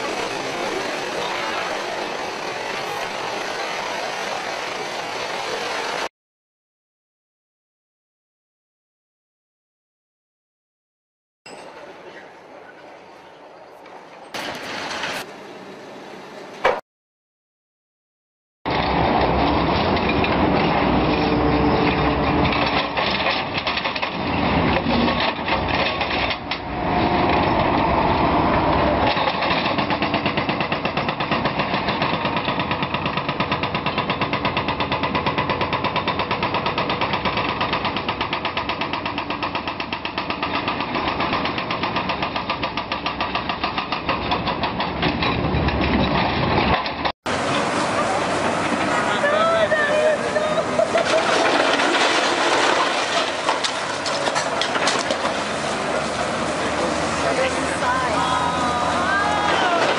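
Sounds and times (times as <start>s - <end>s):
excavator engine under load: 14.4s - 16.8s, 18.7s - 59.9s.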